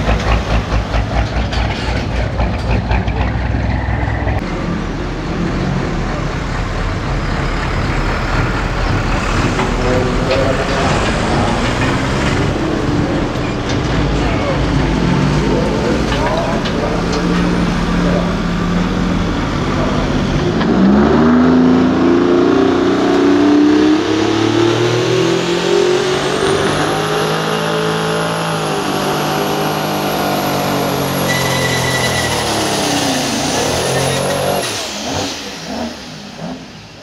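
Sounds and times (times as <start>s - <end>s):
diesel truck engine revving: 0.0s - 37.0s
high whistle: 31.3s - 32.7s.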